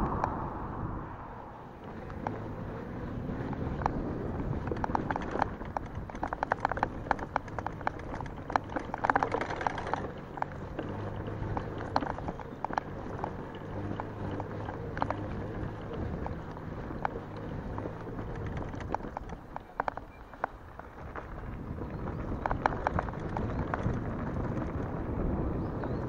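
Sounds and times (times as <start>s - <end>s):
low steady hum: 0.0s - 4.1s
bike rattling over bumps: 1.6s - 26.0s
tyres crunching on gravel: 2.2s - 25.3s.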